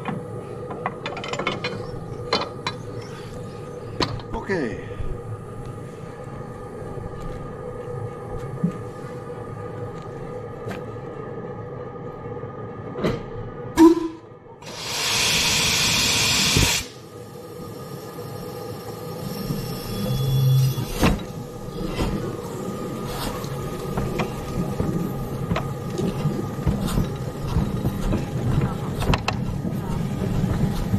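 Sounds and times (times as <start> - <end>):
steam locomotive low hum: 0.0 - 30.9
steam hissing: 14.6 - 30.9.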